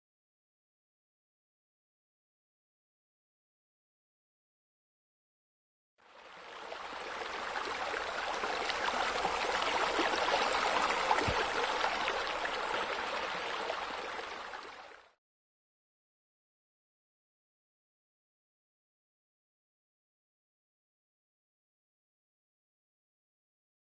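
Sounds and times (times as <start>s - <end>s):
running water rushing: 6.1s - 15.2s.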